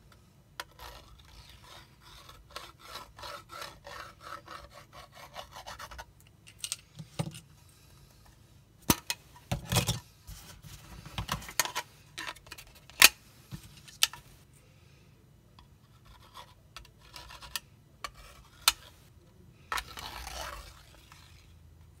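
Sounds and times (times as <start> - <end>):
light tip scratching a board: 0.6 - 6.1.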